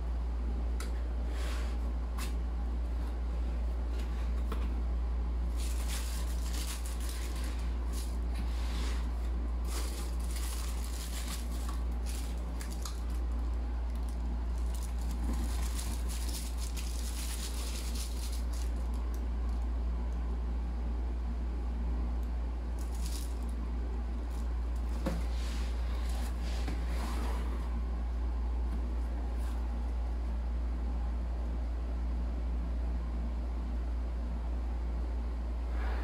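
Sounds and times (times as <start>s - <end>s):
steady low hum: 0.0s - 36.0s
tissue paper crinkling: 5.4s - 19.1s, 22.8s - 23.6s
cardboard scraping: 5.5s - 12.3s.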